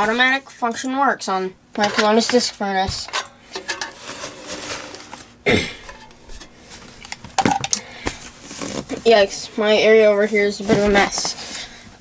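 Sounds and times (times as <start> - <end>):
space heaters clunking and knocking: 1.8 - 8.2.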